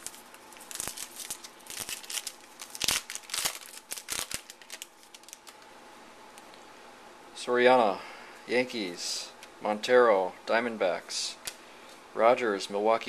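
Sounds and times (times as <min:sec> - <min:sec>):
foil wrapper crinkling and tearing: 0:00.0 - 0:05.6.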